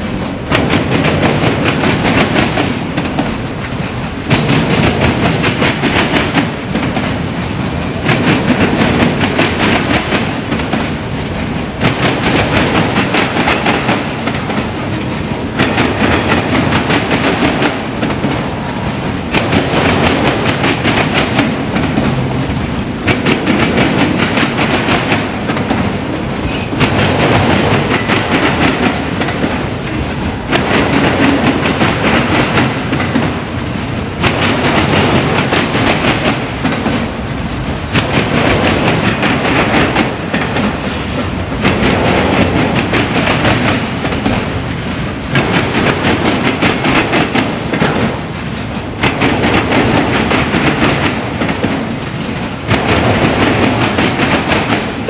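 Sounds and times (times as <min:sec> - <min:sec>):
freight train wheels clicking: 0:00.0 - 0:55.0
high wheel squeal: 0:06.6 - 0:08.0.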